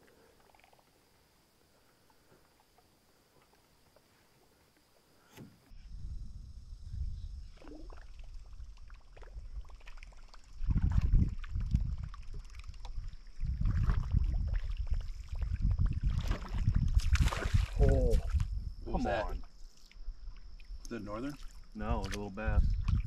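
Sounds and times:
wind buffeting microphone: 0:05.9 - 0:07.6, 0:10.6 - 0:19.4, 0:22.4 - 0:23.0
light water sounds: 0:07.4 - 0:23.0.

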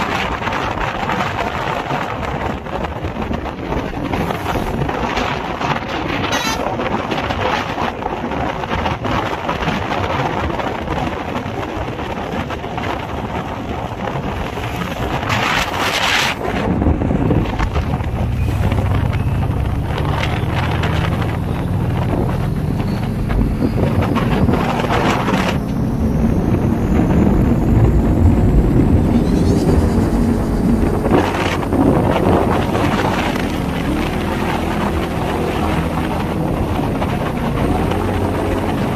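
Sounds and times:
road noise: 0:00.0 - 0:38.9
wind buffeting microphone: 0:00.0 - 0:38.9
engine accelerating: 0:17.0 - 0:38.9
car rushing past: 0:17.7 - 0:38.9.

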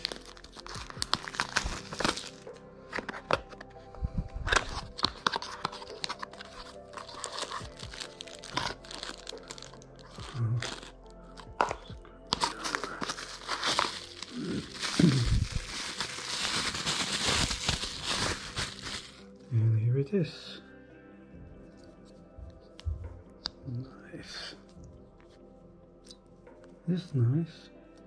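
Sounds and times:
plastic packaging crinkling: 0:00.0 - 0:03.7, 0:04.4 - 0:19.3
cardboard box opening crackles: 0:00.0 - 0:03.8, 0:04.4 - 0:19.2
background music: 0:00.0 - 0:28.0.

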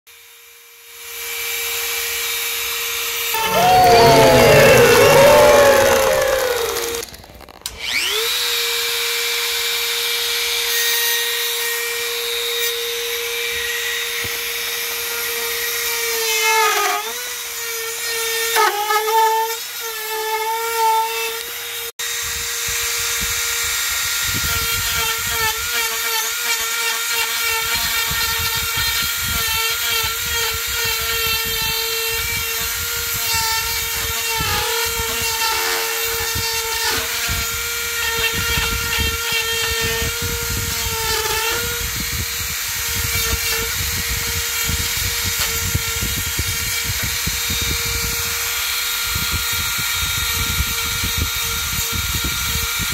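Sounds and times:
bit grinding into wood: 0:03.4 - 0:07.4
rotary tool motor whining: 0:03.4 - 0:08.6.

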